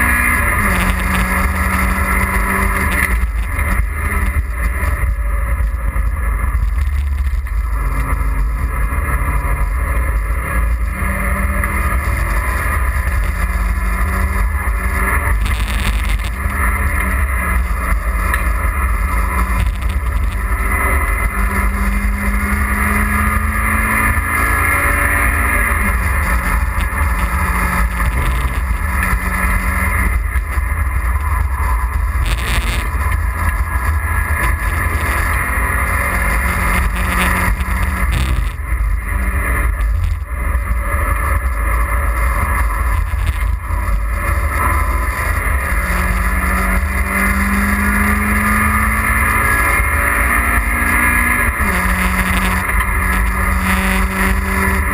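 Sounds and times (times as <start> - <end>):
car engine accelerating: 0.0 - 54.9
road rumble: 0.0 - 54.9
wind noise: 0.0 - 54.9.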